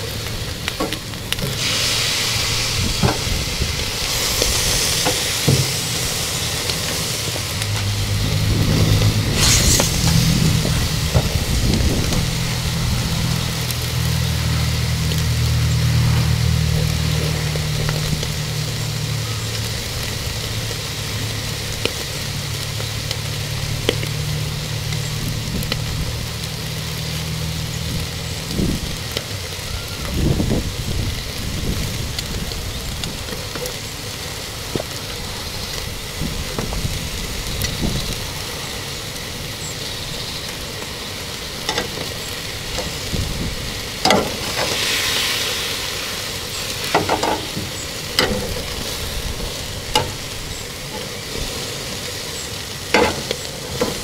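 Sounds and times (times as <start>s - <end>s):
food sizzling on grill: 0.0s - 54.0s
wind buffeting microphone: 2.4s - 6.2s, 7.3s - 14.0s, 27.7s - 29.1s, 29.7s - 33.3s, 35.8s - 38.6s, 42.4s - 44.8s.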